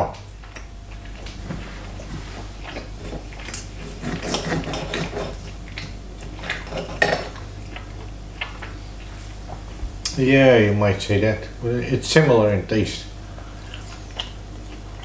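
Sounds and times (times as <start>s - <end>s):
knife and fork scraping on plate: 3.8s - 5.5s.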